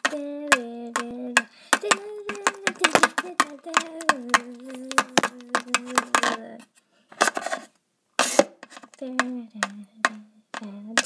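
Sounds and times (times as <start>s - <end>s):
high voice singing long notes: 0.0s - 6.7s, 9.0s - 11.0s.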